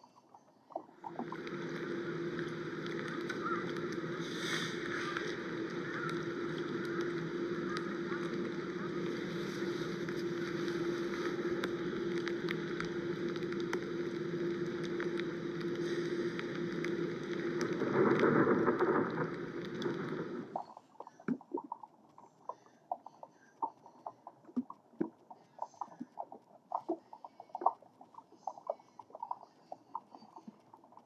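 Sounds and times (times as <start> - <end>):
steady hum: 0.0 - 20.8.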